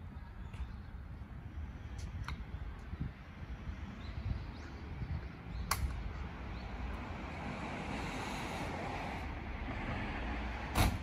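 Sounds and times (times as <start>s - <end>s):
wind rumble on microphone: 0.0s - 11.0s
sharp clicks: 5.6s - 6.0s.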